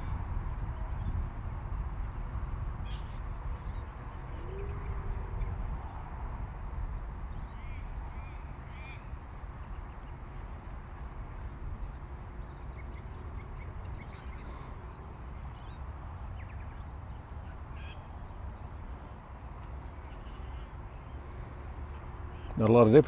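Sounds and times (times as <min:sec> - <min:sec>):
wind rumble on microphone: 0:00.0 - 0:23.0
faint short bird calls: 0:02.8 - 0:05.5, 0:07.5 - 0:09.1, 0:12.7 - 0:14.9, 0:17.4 - 0:18.1.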